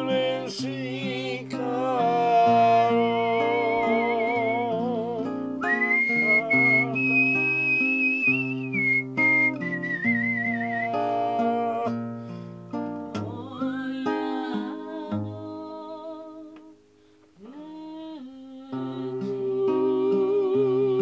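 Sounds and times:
fingerpicked classical guitar: 0.0s - 21.0s
person humming a melody: 0.9s - 9.0s, 9.9s - 12.0s, 17.4s - 21.0s.

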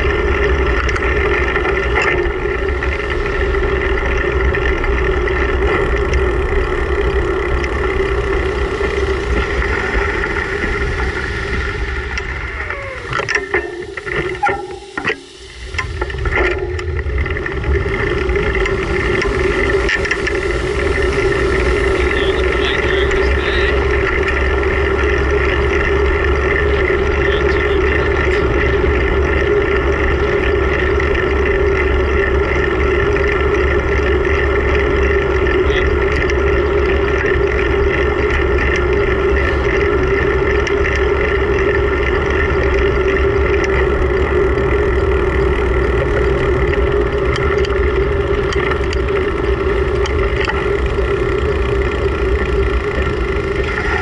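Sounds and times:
wind rush on microphone: 0.0s - 34.6s
constant hum: 0.0s - 54.0s.

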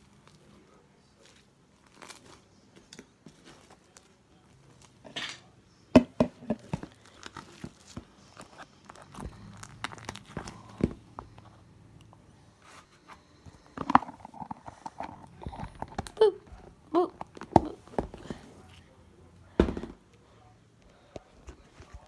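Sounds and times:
slime squishing: 6.6s - 11.5s.

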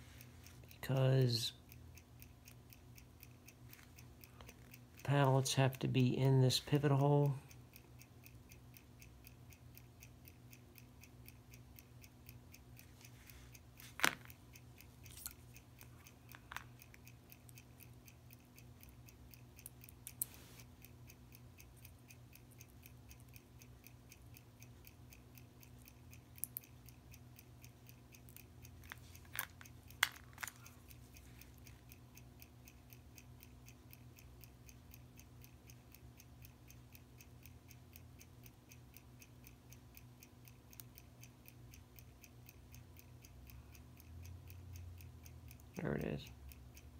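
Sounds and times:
clock ticking: 0.0s - 46.9s
low steady hum: 0.0s - 46.9s
tweezers clicking on metal: 28.1s - 32.0s.

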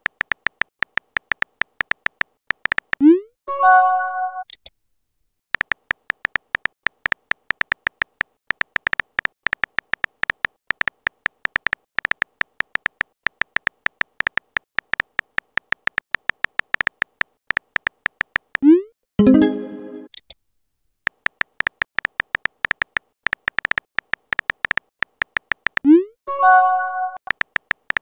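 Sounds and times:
simulated keyboard clicks: 0.0s - 3.2s, 5.6s - 18.8s, 21.1s - 26.0s, 27.2s - 28.0s.

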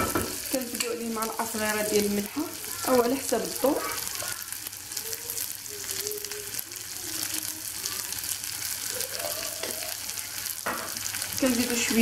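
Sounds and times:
onion frying in oil: 0.0s - 12.0s.

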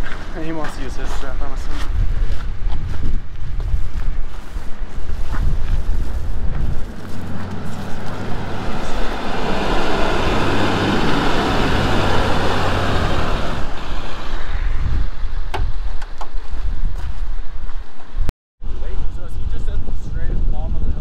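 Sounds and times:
low engine hum: 5.0s - 15.8s
truck driving past on gravel: 5.6s - 14.4s.

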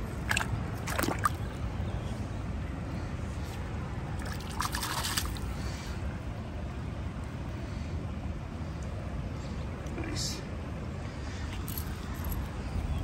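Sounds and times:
water splashing and trickling: 0.0s - 1.8s, 3.6s - 6.1s.

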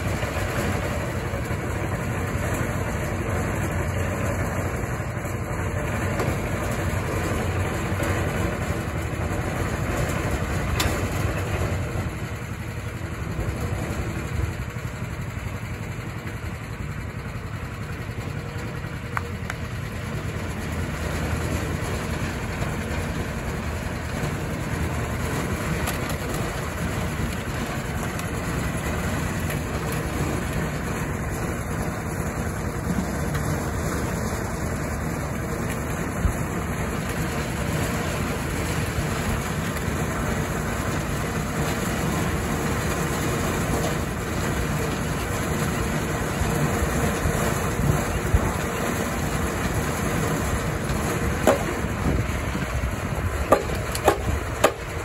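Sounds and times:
concrete mixer running: 0.0s - 55.0s
concrete pouring: 18.5s - 55.0s
sharp knocks: 53.5s - 54.9s.

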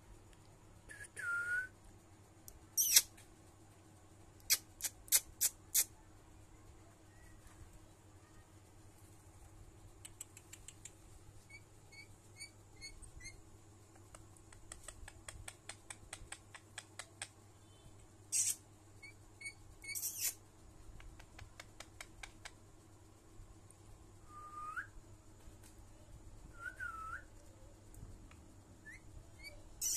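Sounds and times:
parakeet soft chirps: 2.8s - 3.2s, 10.1s - 13.4s, 17.6s - 20.4s, 28.8s - 29.9s
parakeet clicking: 10.0s - 11.0s, 21.0s - 22.6s
parakeet hissing bursts: 18.3s - 18.6s.

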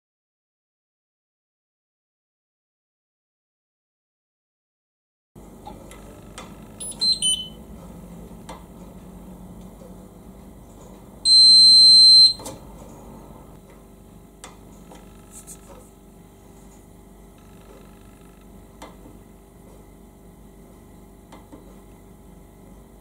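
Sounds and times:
long steady high beep: 6.8s - 7.6s, 11.3s - 12.4s
short high beeps: 6.8s - 7.6s, 11.3s - 12.5s.

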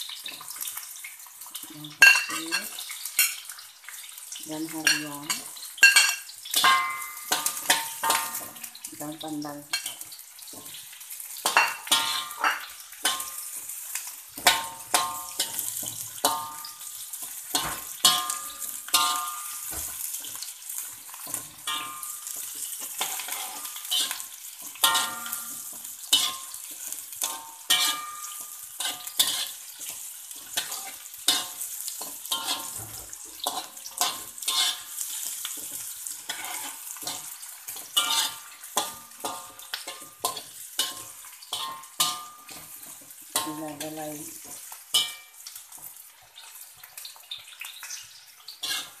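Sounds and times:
food sizzling in fat: 0.0s - 49.0s
metal spatula scraping a wok: 9.7s - 45.4s, 48.4s - 49.0s.

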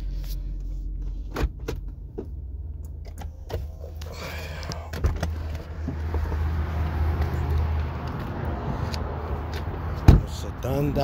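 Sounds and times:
car engine idling: 0.0s - 11.0s
outside noise: 0.0s - 11.0s
car door opening: 9.5s - 10.4s.

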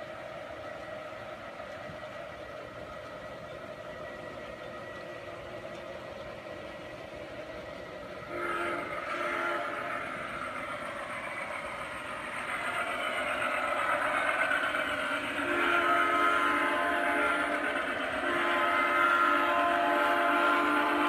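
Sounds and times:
model train running noise: 0.0s - 21.0s
model train horn blasts: 8.3s - 10.4s, 15.3s - 21.0s.

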